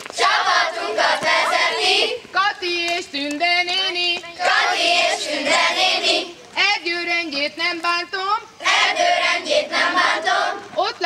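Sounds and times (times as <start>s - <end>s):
children singing: 8.6s - 10.6s.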